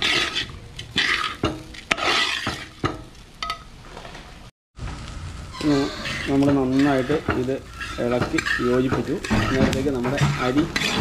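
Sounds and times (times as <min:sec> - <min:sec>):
metal spatula scraping metal pot: 0:00.0 - 0:03.0, 0:05.5 - 0:11.0.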